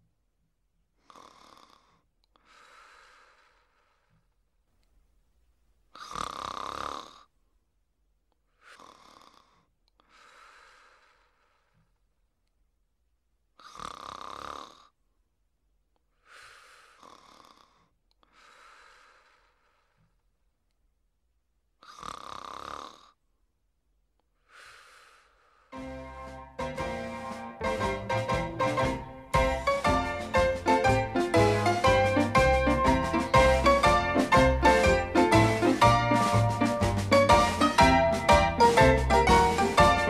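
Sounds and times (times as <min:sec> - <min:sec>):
slow heavy breathing: 0:01.0 - 0:04.4, 0:08.5 - 0:12.0, 0:16.1 - 0:20.2, 0:24.4 - 0:25.8.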